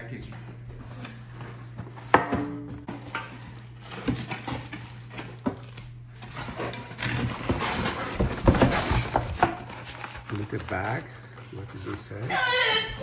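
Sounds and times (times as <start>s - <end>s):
cardboard and packing rustling: 0.2s - 13.0s.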